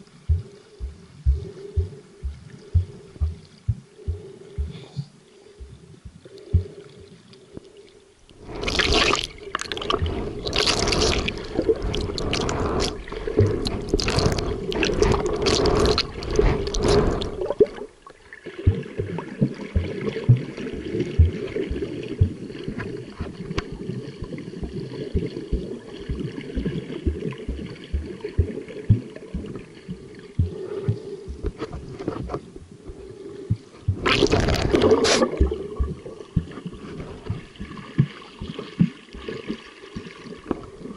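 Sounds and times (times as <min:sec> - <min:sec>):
gurgling water wash: 0:00.0 - 0:40.9
soft underwater knocks: 0:00.3 - 0:04.9, 0:18.7 - 0:40.7
underwater splashing rush: 0:08.4 - 0:40.9.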